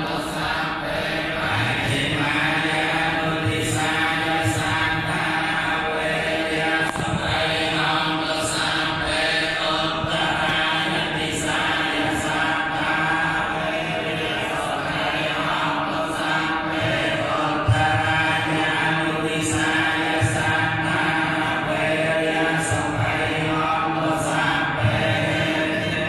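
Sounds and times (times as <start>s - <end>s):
monks chanting together: 0.0s - 26.0s
person chanting into a microphone: 0.0s - 26.0s.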